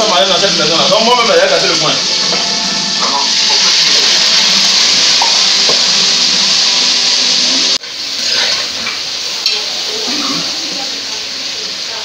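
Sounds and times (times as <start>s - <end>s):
food frying sizzle: 0.0s - 12.0s.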